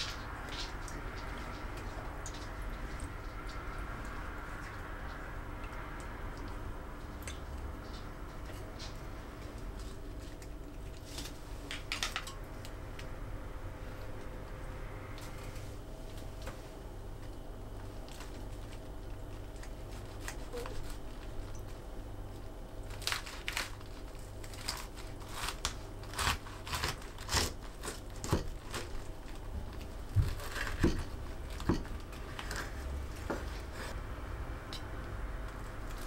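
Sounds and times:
knife crackling through cabbage: 18.0 - 21.8, 22.8 - 34.0.

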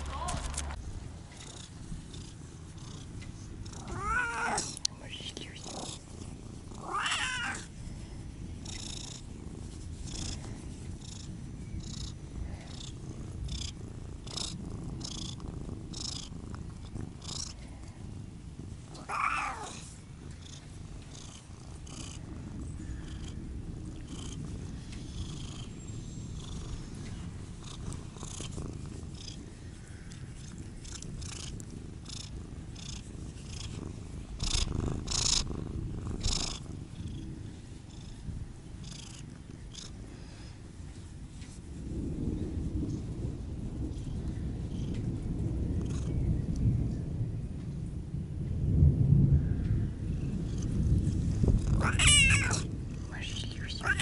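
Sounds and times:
fingers rustling through fur: 0.0 - 38.2, 38.8 - 42.0
cat purring: 0.0 - 43.1, 43.8 - 46.5, 50.2 - 54.0.

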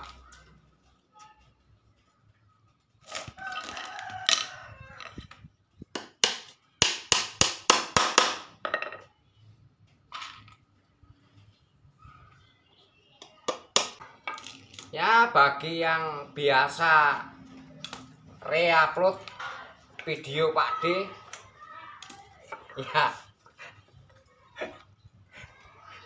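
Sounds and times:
rooster crowing: 3.2 - 5.3.

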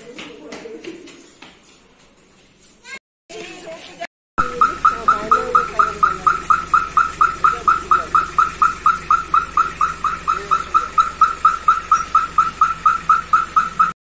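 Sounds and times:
reverse-warning beeper chirping: 4.4 - 14.0.

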